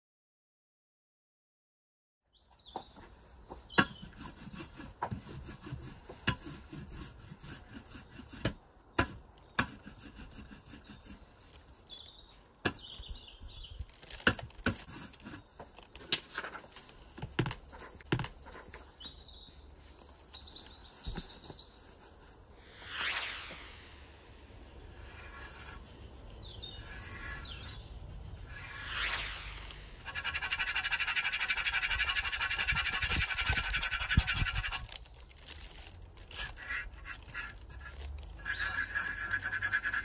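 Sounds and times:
birds chirping: 2.3s - 14.0s, 17.7s - 22.0s, 25.0s - 29.5s, 30.2s - 40.0s.

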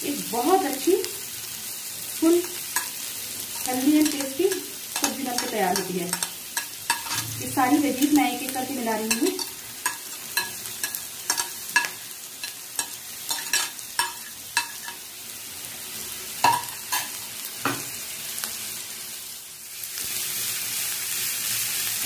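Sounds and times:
vegetables sizzling in oil: 0.0s - 22.0s
steel spoon clinking: 2.5s - 3.0s, 3.6s - 7.4s, 9.0s - 15.1s.

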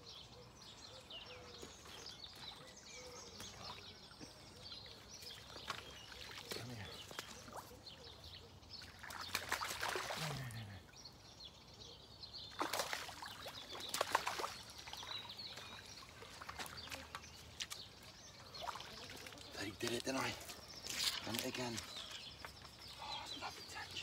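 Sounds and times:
birds chirping faintly: 0.0s - 24.0s
water splashing and sloshing: 3.3s - 8.0s, 8.7s - 10.8s, 12.5s - 23.6s.

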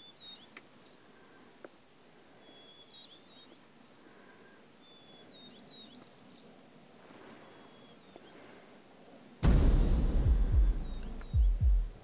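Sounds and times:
songbird whistling song: 0.0s - 1.0s, 2.4s - 3.7s, 4.4s - 6.5s, 7.4s - 8.5s, 10.6s - 12.0s.

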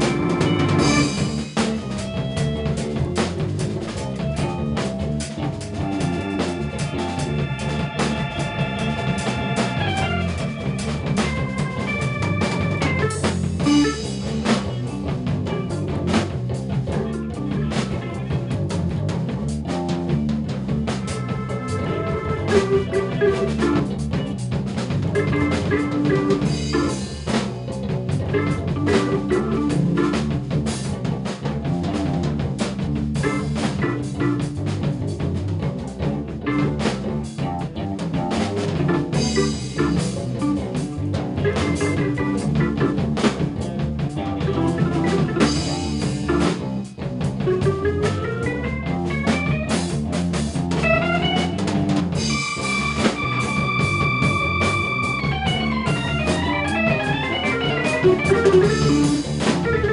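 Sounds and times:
electric piano and organ: 0.0s - 18.9s, 19.7s - 59.9s
drum kit beat: 0.0s - 59.9s
electric bass: 0.0s - 59.9s
electric guitar: 0.0s - 59.9s
rising pitch glide: 50.8s - 59.9s.

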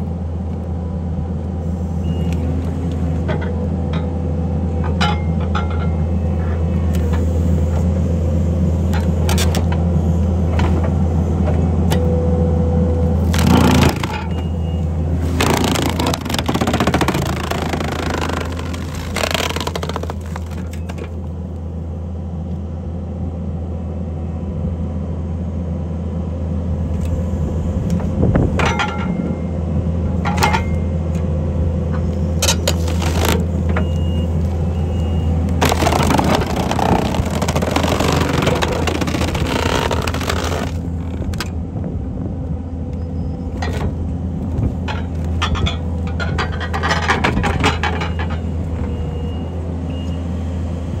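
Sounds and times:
skid steer engine running: 0.0s - 51.0s
wood cracking and splintering: 13.2s - 14.4s, 15.2s - 21.2s, 32.4s - 33.6s, 35.5s - 41.5s.

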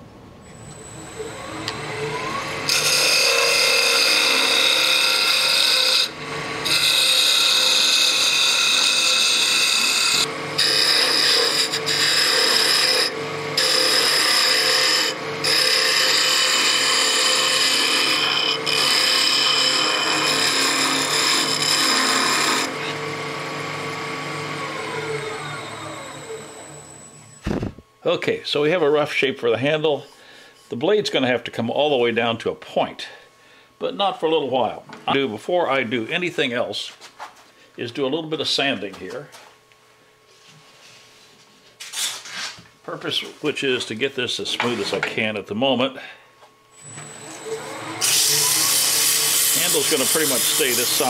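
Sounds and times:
wood lathe running: 0.8s - 27.1s, 46.8s - 51.0s
turning tool cutting wood: 0.8s - 27.5s, 46.8s - 51.0s.

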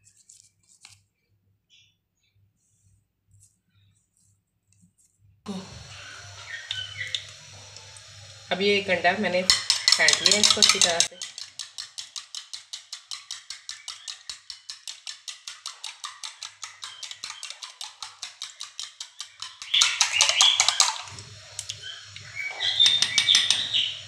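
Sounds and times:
spoon beating egg in bowl: 5.5s - 24.0s.

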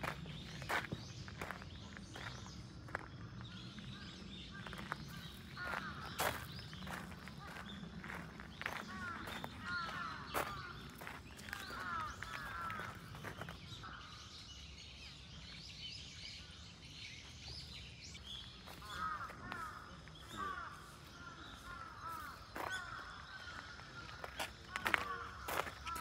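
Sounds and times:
footsteps crunching on gravel: 0.0s - 3.7s, 4.5s - 13.8s, 18.4s - 26.0s
birds calling: 0.0s - 15.4s, 16.3s - 26.0s.

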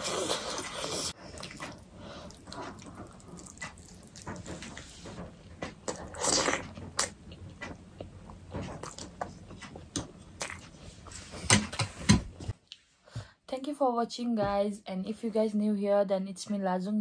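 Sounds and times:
slurping noodles: 0.0s - 4.9s
wet chewing and lip smacks: 1.3s - 4.6s.

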